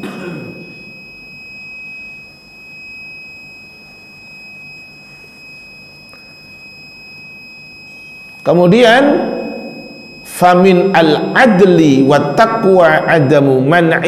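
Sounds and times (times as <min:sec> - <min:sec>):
high-pitched electronic whine: 0:00.0 - 0:14.0.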